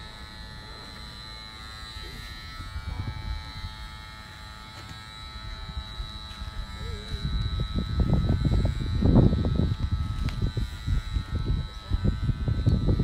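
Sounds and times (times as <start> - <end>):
electric hair clippers buzzing: 0.0 - 13.0.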